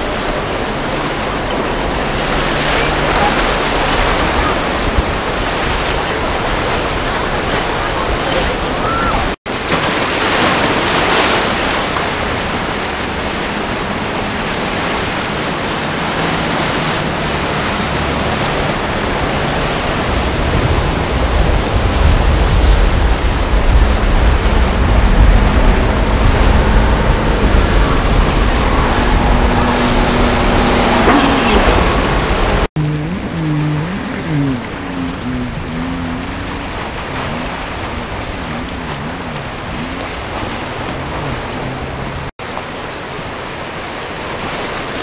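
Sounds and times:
hull wash and breaking wake: 0:00.0 - 0:45.0
wind buffeting microphone: 0:10.4 - 0:42.3
faint engine drone: 0:12.0 - 0:42.3
heavy low rumble: 0:17.0 - 0:42.3.

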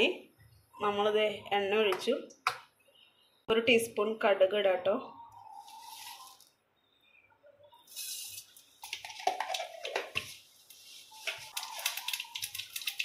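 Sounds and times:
seeds popping and crackling: 0:11.4 - 0:13.0.

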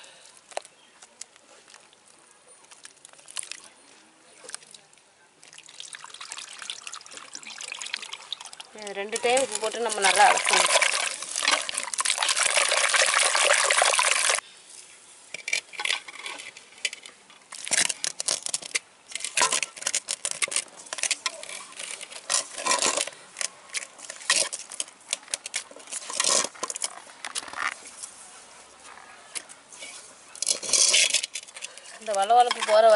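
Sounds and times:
wet squelches: 0:00.5 - 0:14.4
wet sloshing and scrubbing: 0:05.4 - 0:14.4.

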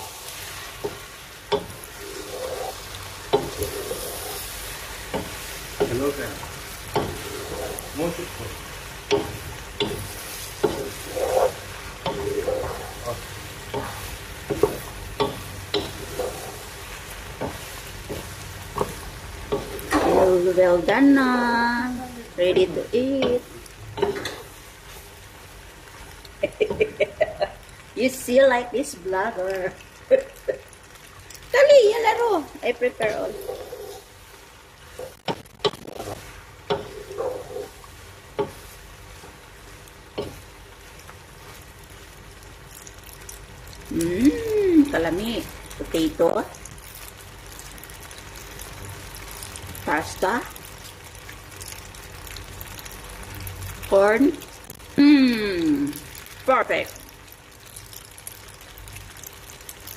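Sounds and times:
faint pan sizzle: 0:00.0 - 0:59.9
wooden spoon knocking and scraping pot: 0:00.7 - 0:04.4, 0:05.0 - 0:08.3, 0:09.0 - 0:21.2, 0:22.4 - 0:24.5, 0:34.9 - 0:39.4, 0:40.1 - 0:40.6
spoon scraping pot: 0:09.2 - 0:13.0, 0:33.0 - 0:34.1.

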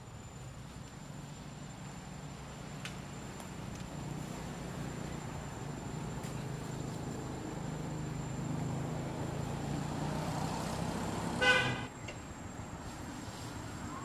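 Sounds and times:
low engine hum: 0:00.4 - 0:14.0
car horn toot: 0:11.4 - 0:11.9.

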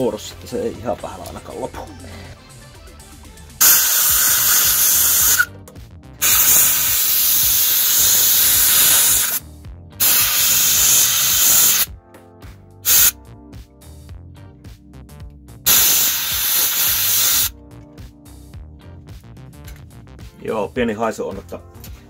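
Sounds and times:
compressed air blow gun hissing: 0:03.6 - 0:05.5, 0:06.2 - 0:09.4, 0:10.0 - 0:11.9, 0:12.8 - 0:13.2, 0:15.7 - 0:17.5.

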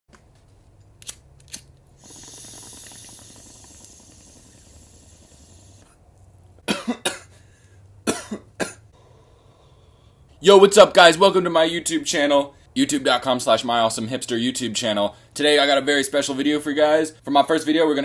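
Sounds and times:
hissing crackling smoke draw: 0:01.8 - 0:06.6
person coughing harshly: 0:06.6 - 0:07.4, 0:08.0 - 0:08.8.

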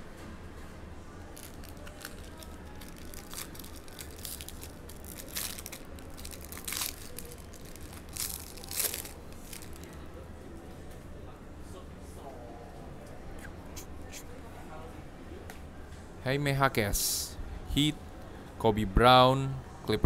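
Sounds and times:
foil wrappers ripping and crinkling: 0:01.4 - 0:10.0.

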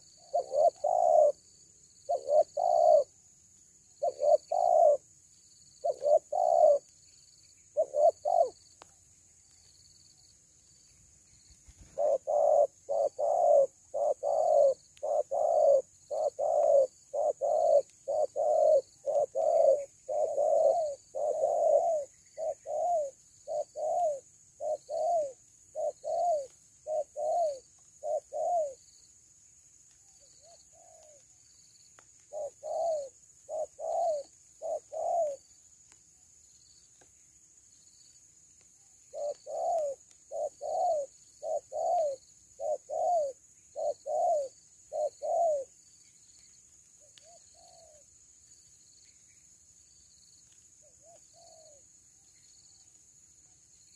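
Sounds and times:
doves cooing: 0:00.0 - 0:03.2, 0:04.0 - 0:05.1, 0:05.8 - 0:06.9, 0:07.7 - 0:08.8, 0:11.6 - 0:28.9, 0:30.4 - 0:31.3, 0:32.2 - 0:35.5, 0:39.1 - 0:45.8, 0:47.2 - 0:48.0.

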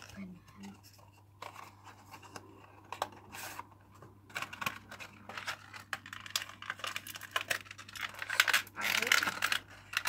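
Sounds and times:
cardboard packaging tearing and rustling: 0:04.3 - 0:10.0.

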